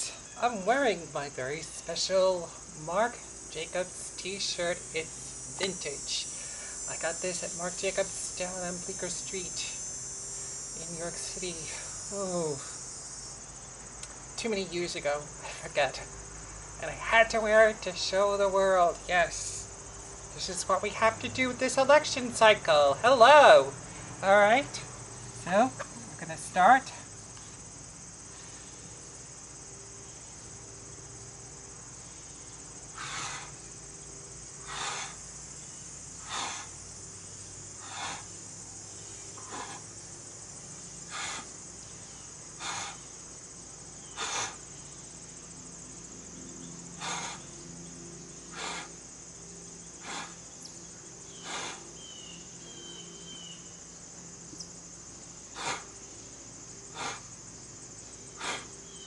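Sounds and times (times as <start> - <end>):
insects chorus: 0.0 - 59.0
man puffing breath: 36.2 - 36.8, 41.1 - 41.5, 42.6 - 43.0, 44.2 - 44.6, 48.6 - 49.0, 51.4 - 51.8, 55.6 - 55.9, 57.0 - 57.3, 58.4 - 58.7.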